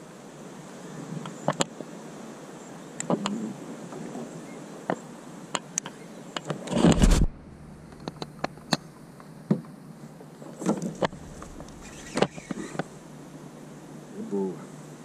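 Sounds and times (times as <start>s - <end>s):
wind buffeting camera: 6.4s - 8.8s, 10.8s - 13.0s
water slapping kayak hull: 10.5s - 13.1s.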